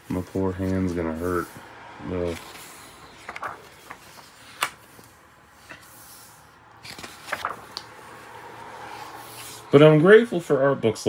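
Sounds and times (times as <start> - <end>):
paper pages rustling: 0.0 - 8.3.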